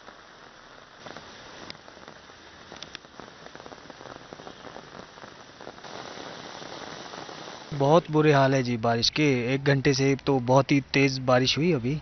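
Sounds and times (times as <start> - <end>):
heavy rain on pavement: 0.0 - 8.5.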